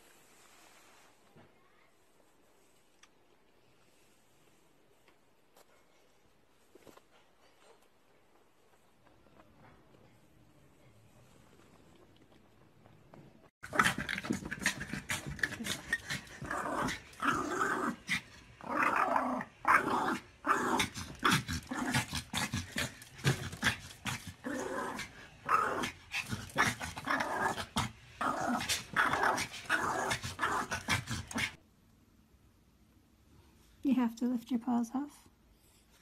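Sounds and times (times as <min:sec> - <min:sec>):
small dog growling: 0:13.6 - 0:31.6.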